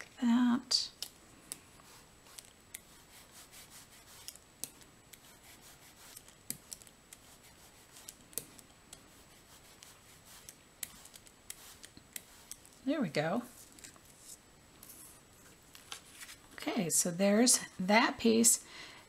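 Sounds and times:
sponge brayer rubbing on paper: 0:01.8 - 0:04.3, 0:05.2 - 0:06.3, 0:07.2 - 0:08.1, 0:09.1 - 0:12.5.

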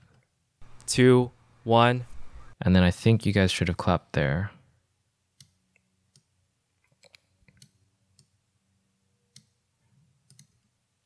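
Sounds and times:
faint computer mouse clicks: 0:10.3 - 0:10.6.

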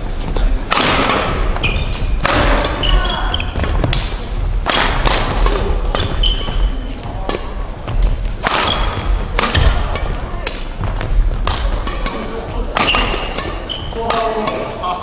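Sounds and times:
racket hitting shuttlecock: 0:00.6 - 0:14.8
shoes squeaking on floor: 0:01.5 - 0:04.0, 0:05.9 - 0:07.2, 0:07.9 - 0:09.9, 0:12.8 - 0:14.4.

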